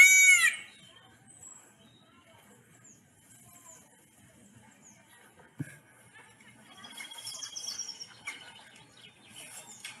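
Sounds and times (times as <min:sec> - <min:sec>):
faint high bird chirps: 0:06.7 - 0:10.0.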